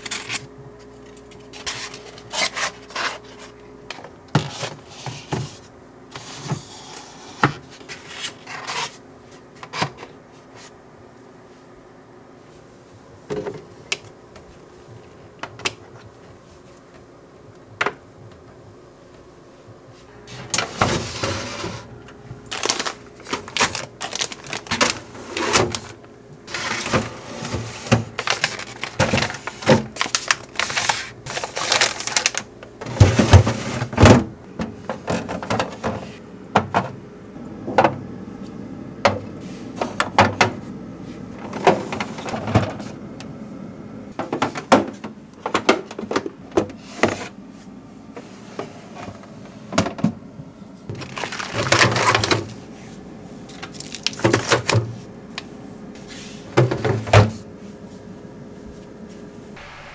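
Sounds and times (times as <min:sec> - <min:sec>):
freezer drawers sliding: 0:01.5 - 0:09.0, 0:20.3 - 0:21.9, 0:22.5 - 0:37.0, 0:41.4 - 0:43.0, 0:50.9 - 0:55.0
plastic bags crinkling: 0:22.4 - 0:26.0, 0:28.1 - 0:32.6, 0:50.9 - 0:52.6, 0:53.5 - 0:54.8.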